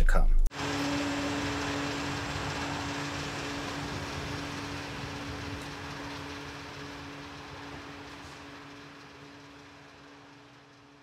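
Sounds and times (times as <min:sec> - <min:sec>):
fuel pump humming: 0:00.5 - 0:11.0.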